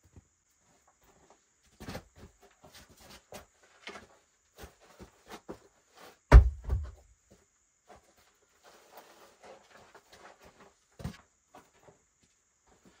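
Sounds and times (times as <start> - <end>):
stone thudding on ground: 6.3 - 7.0.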